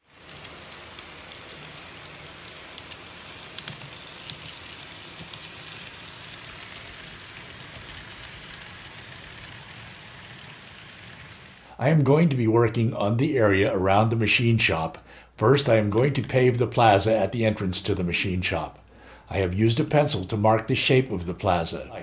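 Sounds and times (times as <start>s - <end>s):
model train hiss and whir: 0.0s - 22.0s
faint clicks: 0.2s - 6.8s.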